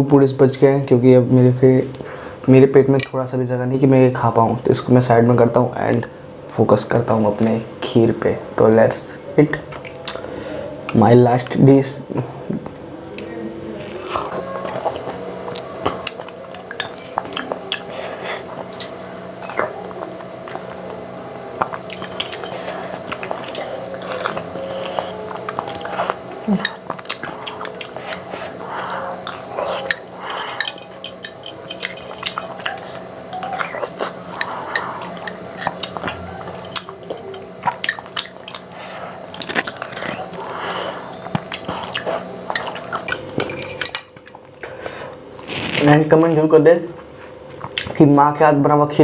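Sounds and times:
wet mouth eating sounds: 0:09.5 - 0:11.0, 0:12.4 - 0:45.9, 0:47.5 - 0:48.0.

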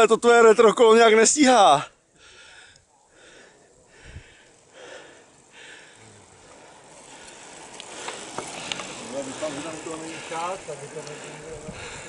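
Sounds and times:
person breathing: 0:02.1 - 0:12.0.

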